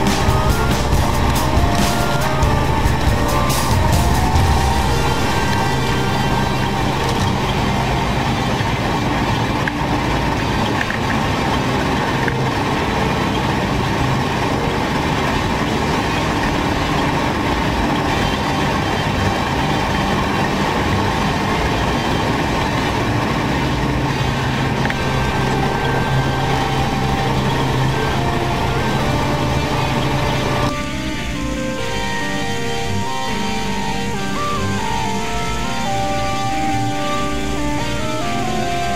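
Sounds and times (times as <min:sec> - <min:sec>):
combine harvester drone: 0:00.0 - 0:38.9.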